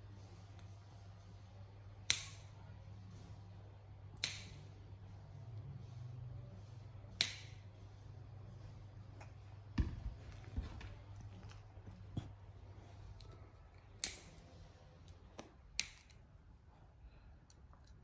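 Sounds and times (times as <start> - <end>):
nail clippers snipping dog toenails: 4.2 - 4.6, 7.2 - 7.6, 14.0 - 14.4, 15.4 - 16.2.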